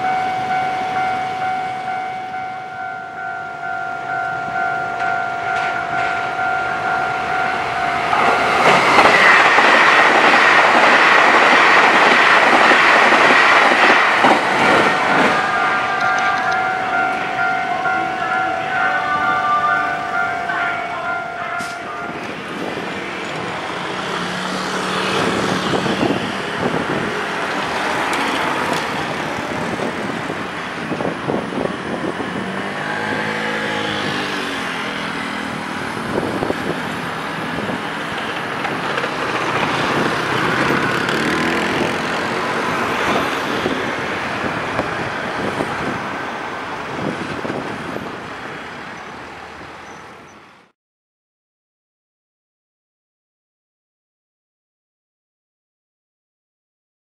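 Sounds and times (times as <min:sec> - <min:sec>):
road traffic passing: 0:00.0 - 0:50.7
small truck driving past: 0:32.2 - 0:37.1, 0:39.4 - 0:42.5.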